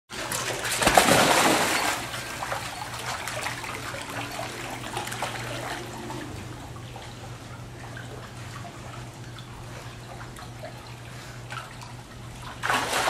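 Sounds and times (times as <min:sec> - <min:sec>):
dog swimming and splashing: 0:00.1 - 0:13.0
steady low hum: 0:00.1 - 0:13.0
big splash: 0:00.7 - 0:02.2, 0:12.6 - 0:13.0.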